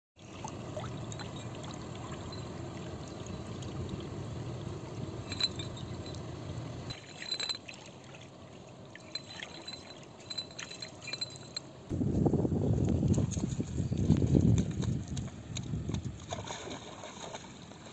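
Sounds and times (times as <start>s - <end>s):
low water rush: 0.2s - 11.6s, 13.1s - 17.9s
wind rumble on microphone: 11.9s - 17.5s.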